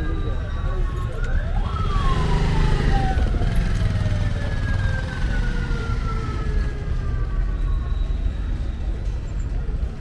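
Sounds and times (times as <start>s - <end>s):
siren wailing: 0.0s - 8.3s.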